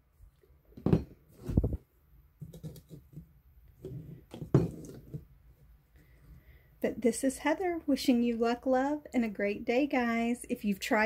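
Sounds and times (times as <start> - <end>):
plastic bottles knocking on table: 0.8 - 1.2, 4.3 - 5.2.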